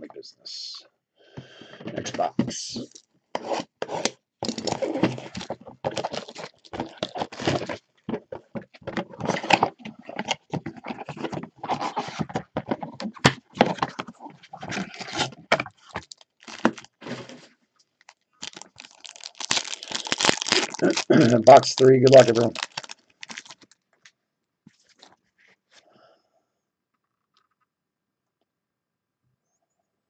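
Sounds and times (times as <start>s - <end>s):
cardboard box being opened: 3.4s - 17.5s, 18.4s - 23.6s
plastic wrappers crinkling: 4.4s - 17.4s, 18.0s - 23.9s.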